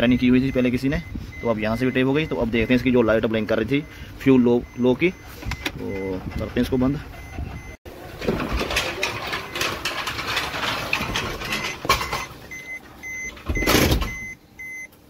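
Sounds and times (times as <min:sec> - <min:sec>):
car warning chime beeping: 0:00.0 - 0:07.8, 0:11.5 - 0:15.0
rustling and clattering handling: 0:08.1 - 0:12.4.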